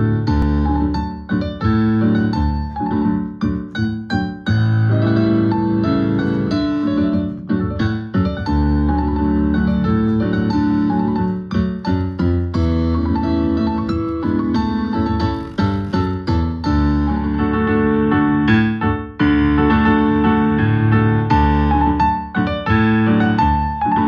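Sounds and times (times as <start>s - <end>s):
solo piano chords: 0.0s - 24.0s.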